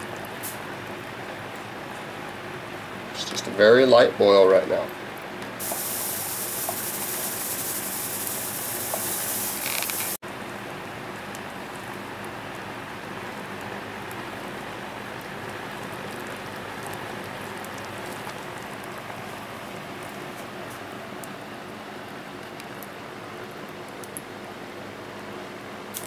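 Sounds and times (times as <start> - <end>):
pot simmering hiss: 0.0 - 26.0
loud bright hiss: 5.6 - 10.2.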